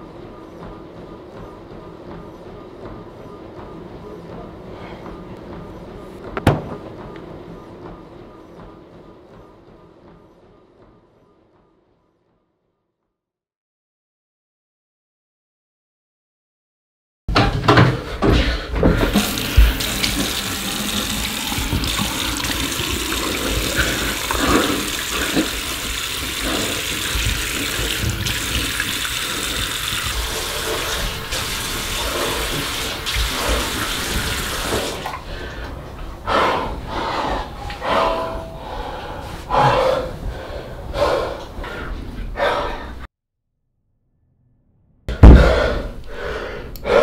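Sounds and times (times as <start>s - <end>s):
sink tap running: 19.0s - 35.2s.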